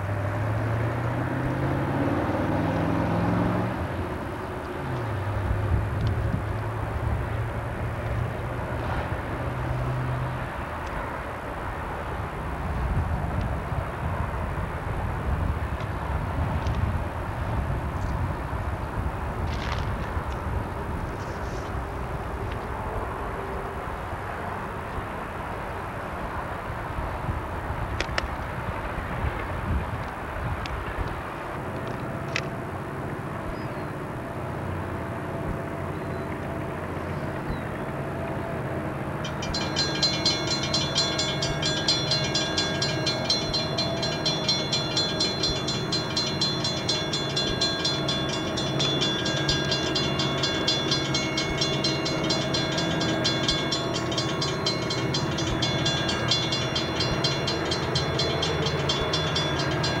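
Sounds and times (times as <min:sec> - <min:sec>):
diesel locomotive engine drone: 0:00.0 - 1:00.0
high metallic ringing: 0:39.2 - 1:00.0.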